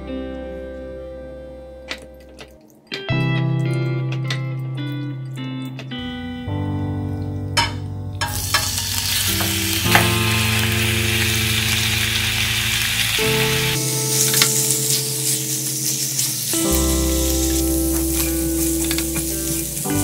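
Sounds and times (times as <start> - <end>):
shrimp sizzling in hot oil: 8.2 - 20.0.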